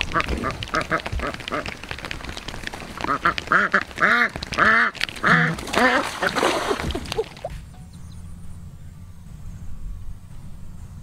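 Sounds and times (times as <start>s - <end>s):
duck quacking loudly: 3.1s - 6.4s.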